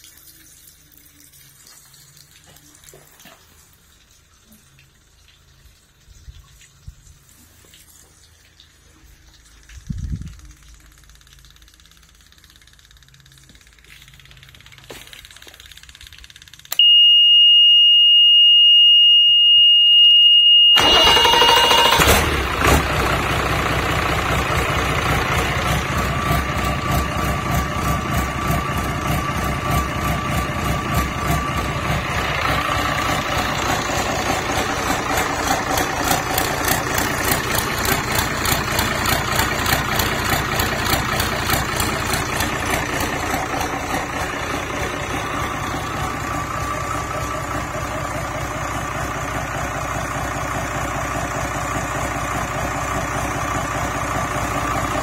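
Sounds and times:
diesel engine idling: 0:20.8 - 0:55.0.

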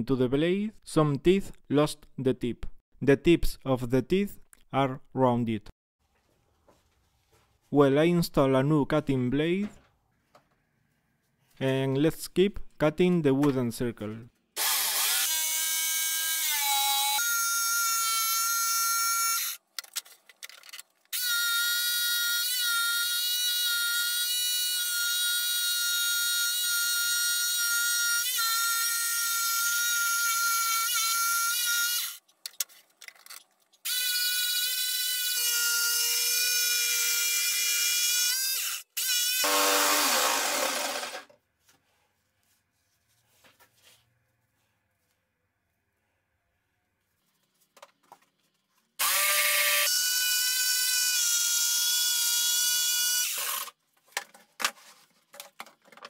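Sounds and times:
jigsaw cutting wood: 0:14.6 - 0:17.2, 0:38.2 - 0:41.3, 0:49.0 - 0:53.7.

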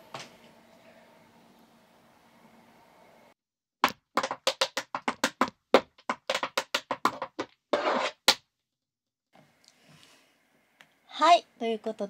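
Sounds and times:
tap shoes on wooden floor: 0:03.8 - 0:08.4
shoe scrape: 0:06.3 - 0:08.4.

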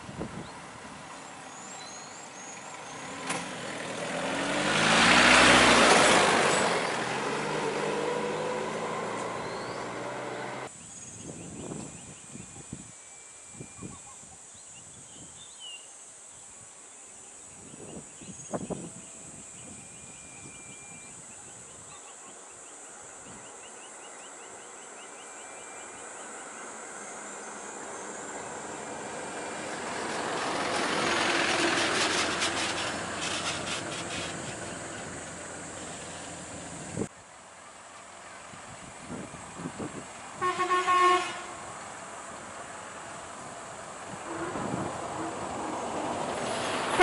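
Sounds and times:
bus engine: 0:00.0 - 0:10.7, 0:24.4 - 0:47.0
high insect drone: 0:10.6 - 0:37.1.

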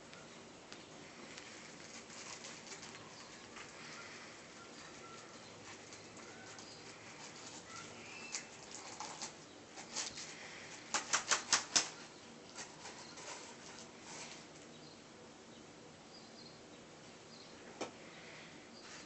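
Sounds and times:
kittens' claws scratching fabric: 0:01.0 - 0:14.6.

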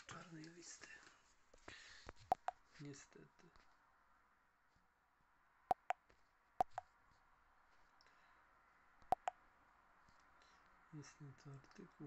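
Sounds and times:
touchscreen tapping clicks: 0:02.3 - 0:02.5, 0:05.7 - 0:06.0, 0:06.6 - 0:06.8, 0:09.1 - 0:09.3.

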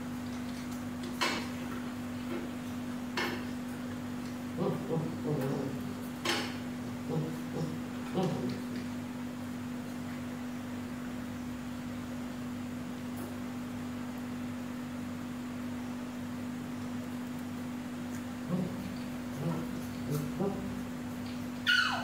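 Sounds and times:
steady low hum: 0:00.0 - 0:21.7.

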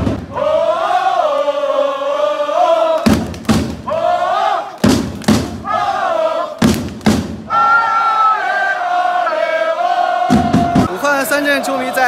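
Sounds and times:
big drum beats: 0:00.0 - 0:00.7, 0:03.0 - 0:04.1, 0:04.8 - 0:06.0, 0:06.6 - 0:07.5, 0:10.3 - 0:11.0
crowd chanting in unison: 0:00.0 - 0:12.0.

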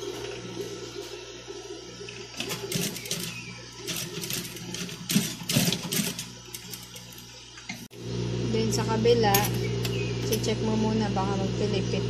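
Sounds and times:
steady low hum: 0:00.0 - 0:12.0
sewing machine stitching: 0:02.4 - 0:06.8.

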